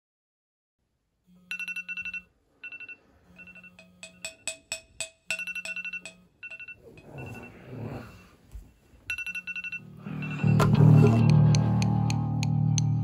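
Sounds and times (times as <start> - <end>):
phone alarm beeps: 1.5 - 4.0, 5.4 - 7.7, 9.1 - 11.4.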